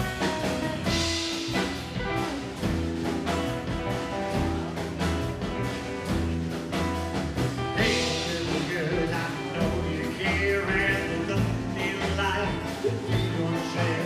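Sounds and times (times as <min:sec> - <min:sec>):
rockabilly band playing: 0:00.0 - 0:14.0
man singing: 0:07.7 - 0:14.0.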